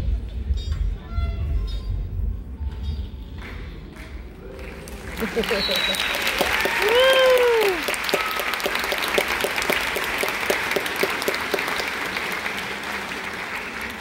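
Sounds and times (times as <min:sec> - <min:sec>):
audience applauding: 0:04.0 - 0:14.0.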